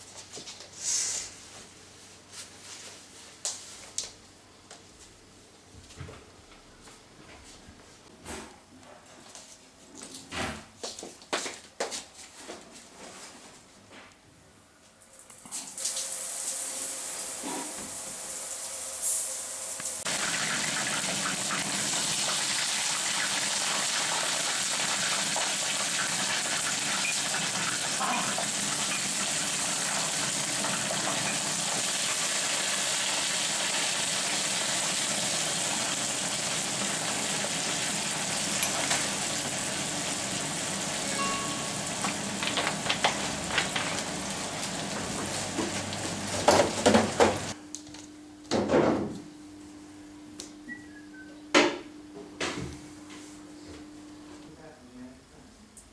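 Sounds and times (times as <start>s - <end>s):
food sizzling in hot oil: 15.8s - 47.6s.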